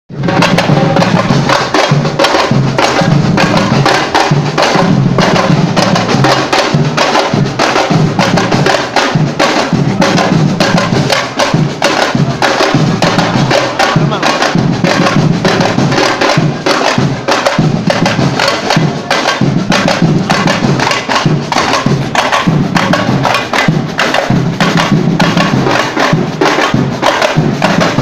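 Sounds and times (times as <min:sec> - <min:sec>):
bass drum beats: 0:00.1 - 0:28.0
snare drums: 0:00.1 - 0:28.0.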